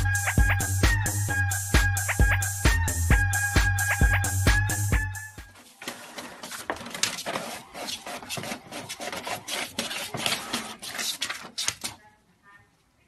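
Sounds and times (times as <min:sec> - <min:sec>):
cat claws scratching hard surface: 0:06.3 - 0:12.0.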